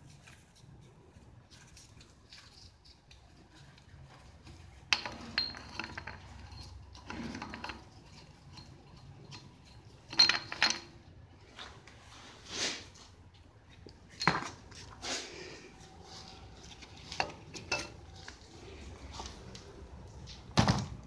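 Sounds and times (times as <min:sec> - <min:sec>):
metal clinks and rattles: 0:02.2 - 0:11.3, 0:13.6 - 0:14.8, 0:16.7 - 0:18.3.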